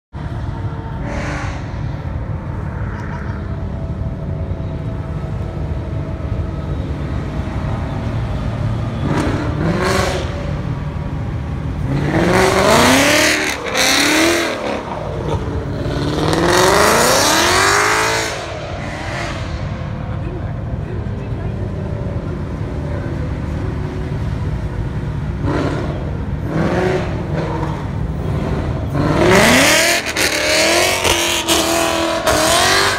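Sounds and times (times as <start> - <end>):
low engine rumble: 0.2 - 12.5, 18.5 - 29.1
car engine revving hard: 11.8 - 19.7, 25.4 - 32.9.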